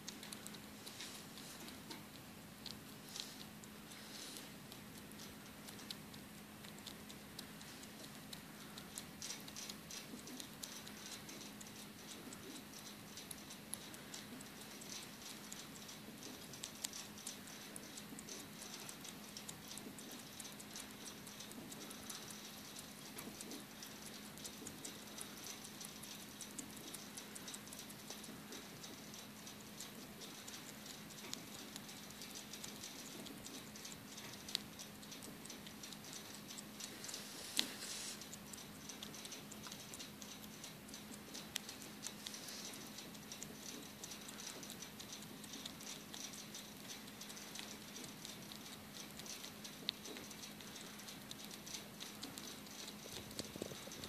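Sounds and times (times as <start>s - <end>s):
bat chewing with crunching clicks: 0.0s - 54.0s
steady low hum: 0.0s - 54.0s.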